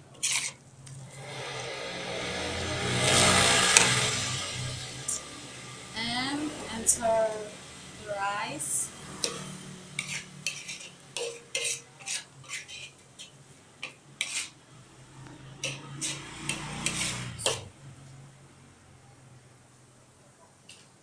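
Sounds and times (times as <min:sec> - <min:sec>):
metal spatula scraping wok: 0:00.0 - 0:07.5, 0:08.6 - 0:14.6, 0:15.4 - 0:17.7.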